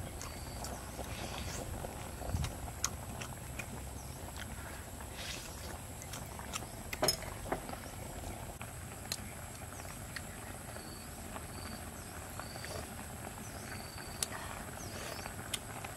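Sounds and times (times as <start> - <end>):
chewing: 0.0 - 7.9, 9.0 - 10.5, 12.4 - 15.9.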